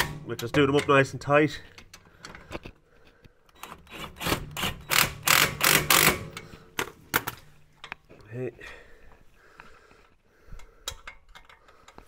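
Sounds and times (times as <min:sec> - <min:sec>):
power tool rattling clicks: 0:03.6 - 0:06.5
sharp tool clicks: 0:04.0 - 0:06.4.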